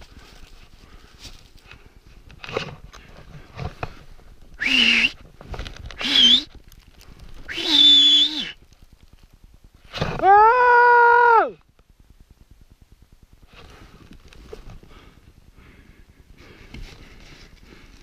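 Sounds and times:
man shouting for help: 10.2 - 11.6.

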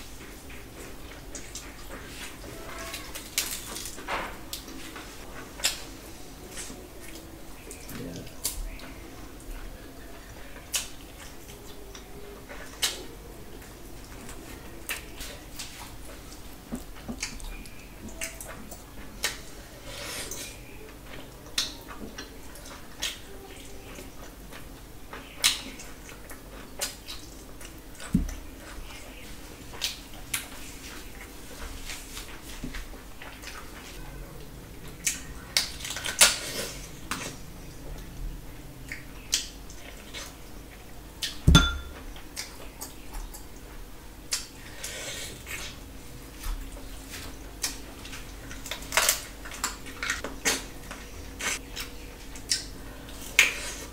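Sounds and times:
chewing: 6.5 - 38.2, 44.3 - 53.9.

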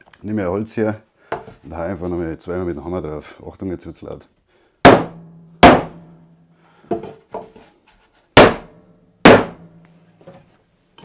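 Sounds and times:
rubber mallet striking wooden block: 4.8 - 6.1, 8.4 - 9.8.

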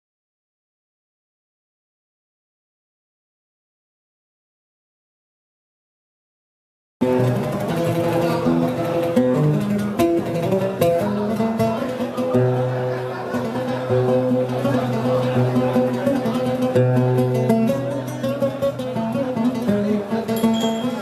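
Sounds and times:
oud plucked melody: 7.0 - 21.0.

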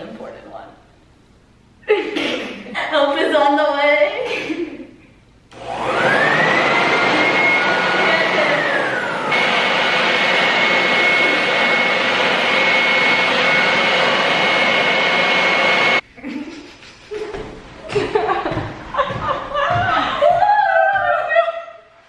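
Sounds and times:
leaf blower whining: 5.5 - 16.0.

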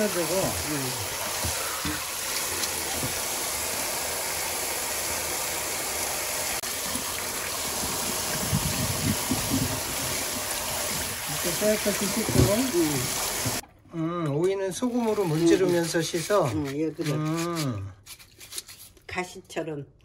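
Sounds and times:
tap water running into steel bowl: 0.0 - 13.6
hands splashing vegetables in water: 14.9 - 19.0.

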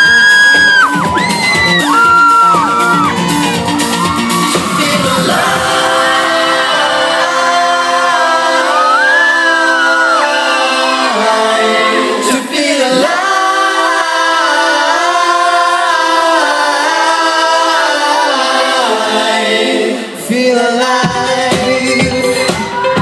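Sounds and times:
bass: 0.0 - 11.6
live pop song: 0.0 - 23.0
sung vocal lines: 1.8 - 23.0.

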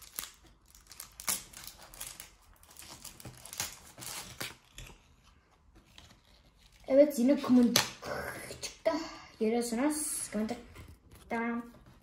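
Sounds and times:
wrapper tearing and crinkling: 0.0 - 5.1.

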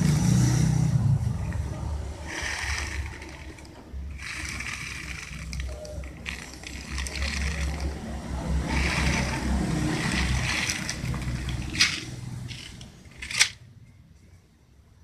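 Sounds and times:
low handling rumble: 0.8 - 13.6
plastic packet crinkling: 2.3 - 8.0, 8.6 - 13.5.

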